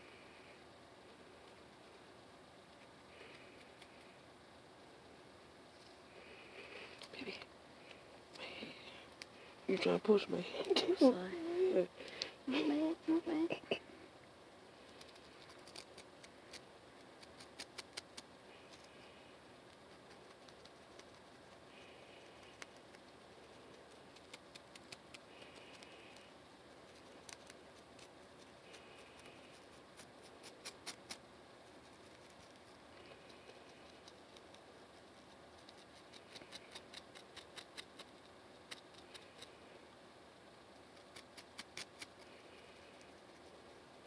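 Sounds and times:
comb scratching scalp: 0:22.2 - 0:39.6, 0:40.9 - 0:42.3.

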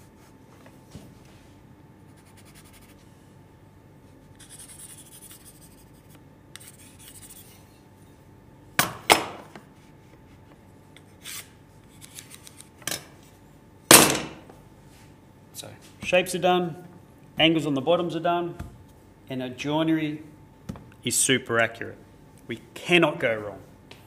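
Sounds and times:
pencil scratching on wood: 0:04.4 - 0:06.0, 0:06.6 - 0:07.5.

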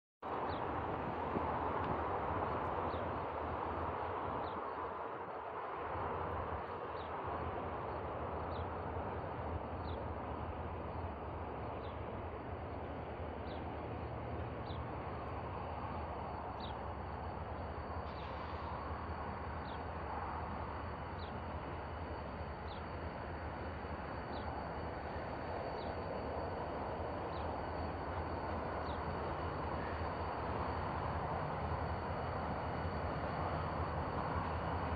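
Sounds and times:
distant diesel locomotives rumbling: 0:00.2 - 0:34.9.

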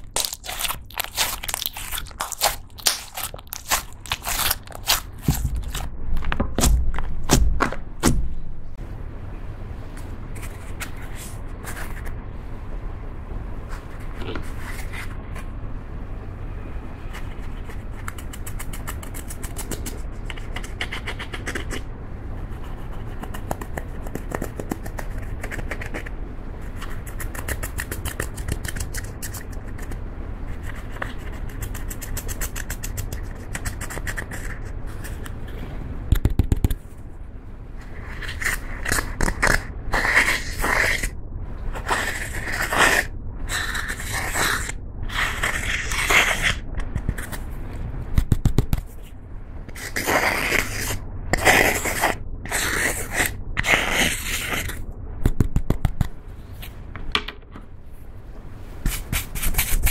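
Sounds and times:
spatula scraping eyeshadow powder: 0:00.0 - 0:05.9, 0:38.0 - 0:47.4, 0:49.7 - 0:54.8, 0:58.8 - 0:59.9.

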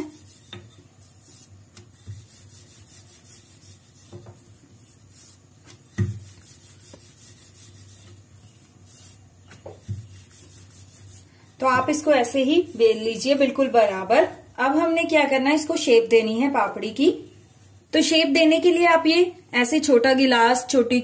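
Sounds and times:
rolling pin rubbing on dough: 0:00.0 - 0:14.1
rolling pin knocks: 0:05.6 - 0:06.3.

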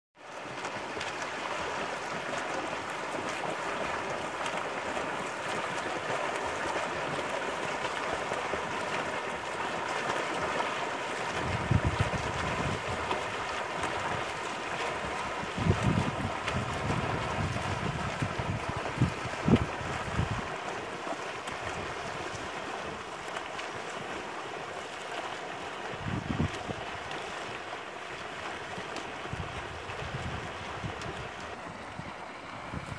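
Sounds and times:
swimmers splashing water: 0:00.2 - 0:32.9
wind rumble on microphone: 0:11.3 - 0:14.3, 0:15.0 - 0:20.6, 0:25.9 - 0:27.1, 0:29.2 - 0:32.9.

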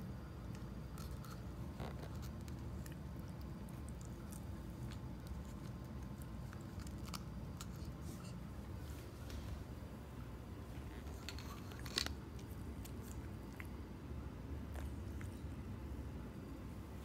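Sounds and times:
dog crunching a chip: 0:00.9 - 0:08.1, 0:10.8 - 0:13.8.

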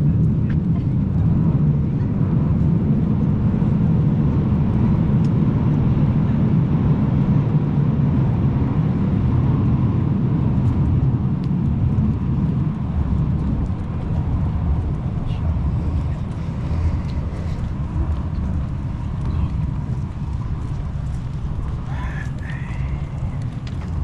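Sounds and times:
vehicle and road rumble: 0:00.0 - 0:24.0
faint clicks: 0:16.0 - 0:24.0.

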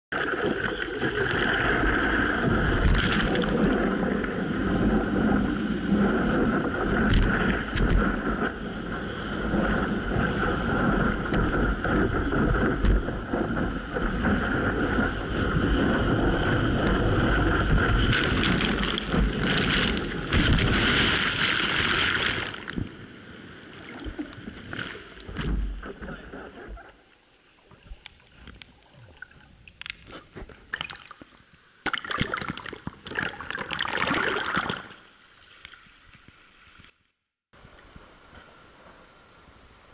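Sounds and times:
muffled underwater sound: 0:00.1 - 0:05.4, 0:25.4 - 0:27.1
surf and choppy water sloshing: 0:00.1 - 0:36.9
wind buffeting microphone: 0:01.0 - 0:21.7.

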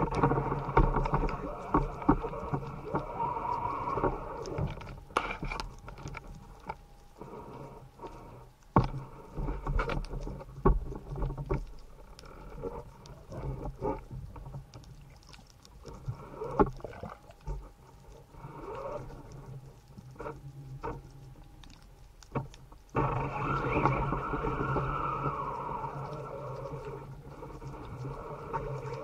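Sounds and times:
underwater clicks and knocks: 0:00.0 - 0:07.3, 0:08.1 - 0:29.0
low underwater hum: 0:00.0 - 0:29.0
short gurgles: 0:16.4 - 0:17.4.

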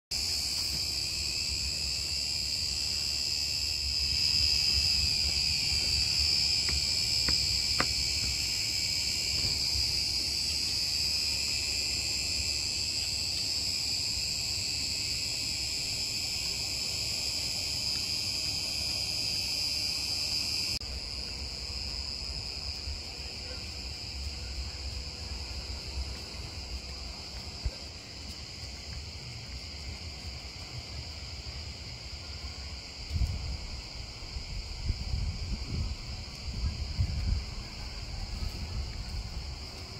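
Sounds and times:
insects chirring: 0:00.1 - 0:39.9.

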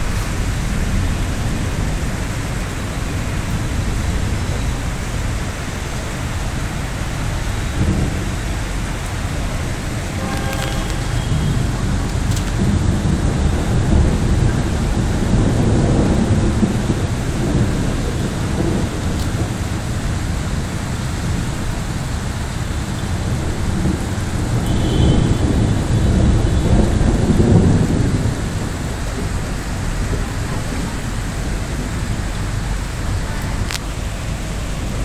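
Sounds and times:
heavy rain: 0:00.0 - 0:35.0
thunder rumbling: 0:00.0 - 0:35.0.

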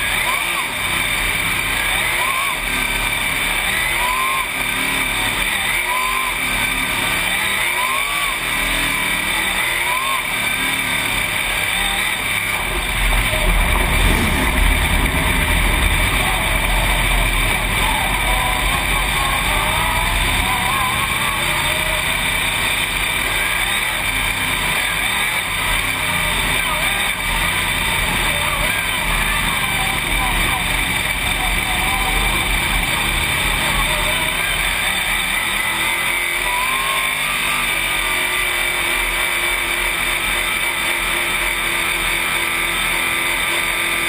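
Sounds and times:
race car engine: 0:00.0 - 0:44.0
heavy low rumble: 0:12.5 - 0:23.1.

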